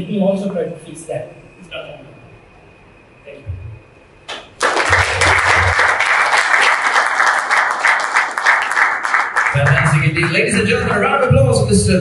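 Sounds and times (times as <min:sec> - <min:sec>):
audience applauding: 0:04.3 - 0:10.5.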